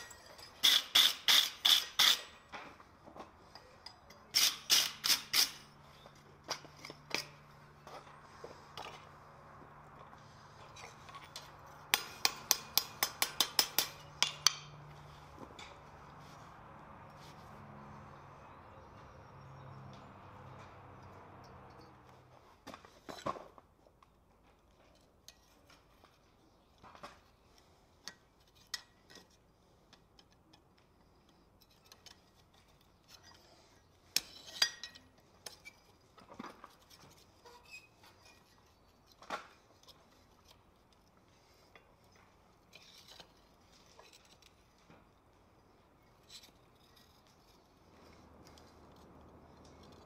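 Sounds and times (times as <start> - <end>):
metal tongs clinking on anvil: 0.0 - 0.8, 11.2 - 14.7, 34.2 - 35.1
sharp metal clanks: 11.3 - 14.8.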